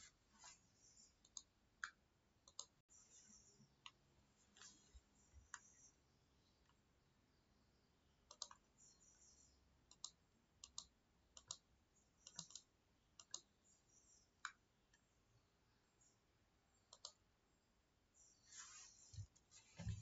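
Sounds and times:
computer mouse clicks: 1.2 - 4.0, 5.4 - 5.9, 8.2 - 13.5, 16.9 - 17.2.

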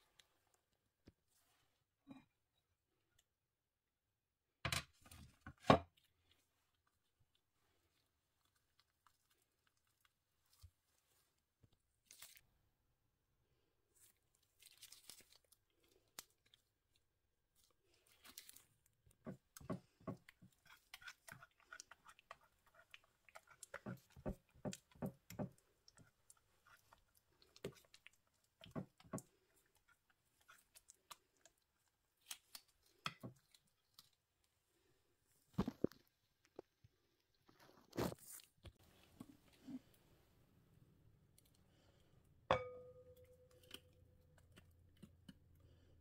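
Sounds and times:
soft wet crushing: 5.9 - 12.6, 13.9 - 39.8.

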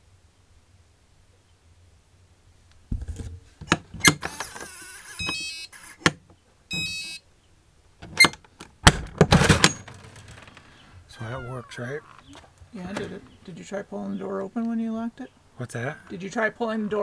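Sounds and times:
electronic beeps: 5.2 - 5.8, 6.7 - 7.2.

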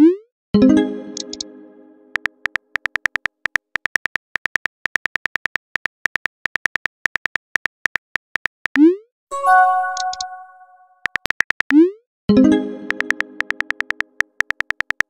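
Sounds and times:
keyboard typing clicks: 1.2 - 1.5, 2.1 - 8.8, 9.5 - 11.8, 12.8 - 15.0.

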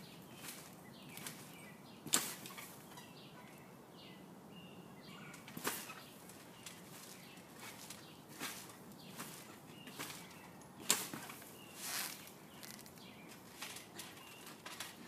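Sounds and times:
trampoline mat slaps: 2.0 - 2.6, 5.5 - 6.1, 10.8 - 11.5.

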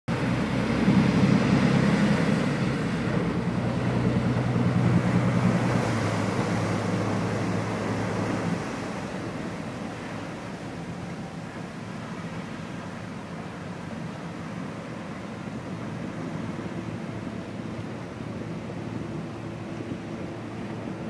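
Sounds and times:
boat engines droning: 0.1 - 21.0
water churning: 0.1 - 21.0.

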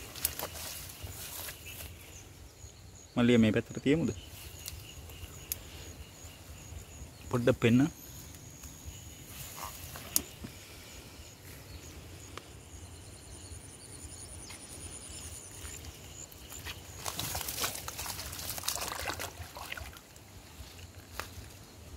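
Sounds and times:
rustling of wet grass and leaves: 0.0 - 13.4, 14.2 - 21.9
splashing in shallow water: 15.5 - 20.6.

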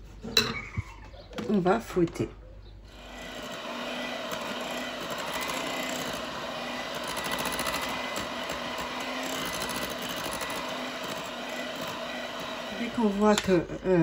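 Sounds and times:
electric hand mixer whirring: 2.9 - 14.0.

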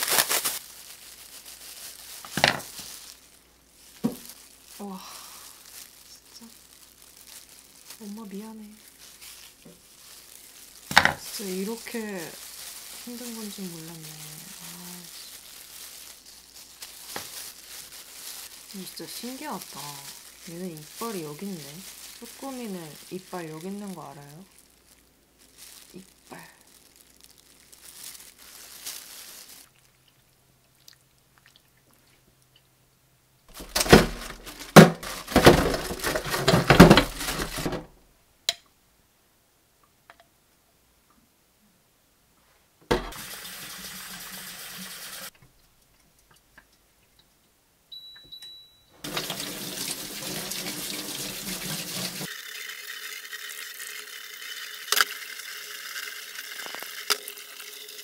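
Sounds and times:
brush scrubbing shells: 8.8 - 24.8, 49.0 - 55.4, 56.0 - 58.0
tap water running into sink: 43.0 - 45.3, 49.0 - 58.0.

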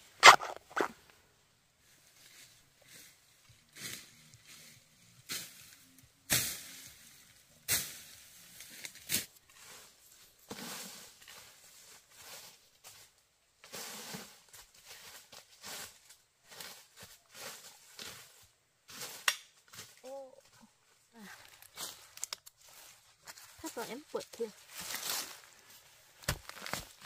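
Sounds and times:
plant material rustling: 19.9 - 27.0.

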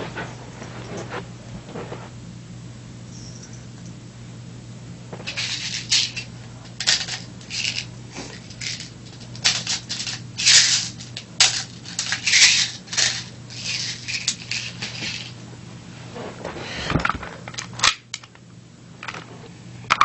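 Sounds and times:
faint low hum: 0.0 - 20.0
small clicks and rattles: 5.2 - 15.4.

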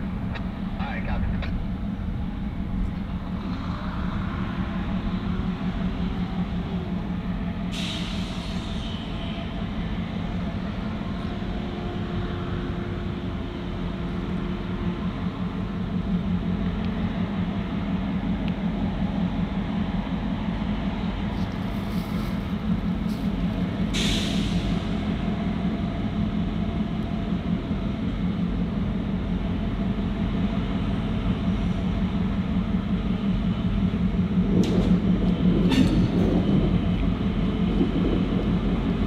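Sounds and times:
diesel locomotive rumbling: 0.0 - 39.0
air hiss: 7.7 - 9.0.

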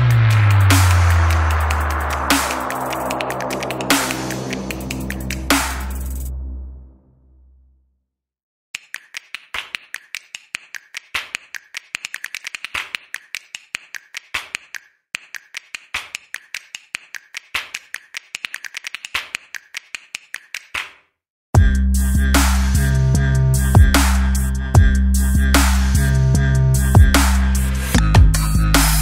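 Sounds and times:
electronic music: 0.0 - 7.4, 21.6 - 29.0
sharp dry clicks: 8.8 - 21.0.

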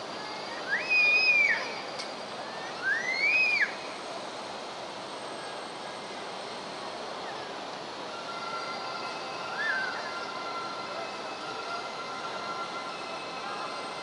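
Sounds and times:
loud high whistle tone: 0.0 - 4.0, 8.1 - 14.0
railway station background noise: 0.0 - 14.0.

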